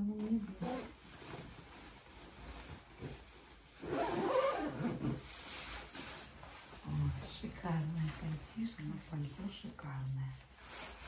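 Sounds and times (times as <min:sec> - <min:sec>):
fabric rustling: 0:00.0 - 0:11.0
coat zipper being pulled: 0:03.8 - 0:05.3.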